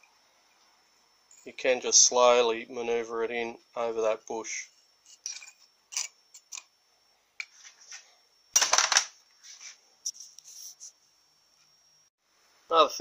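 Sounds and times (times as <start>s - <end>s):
metal parts clicking and clinking: 5.2s - 6.7s.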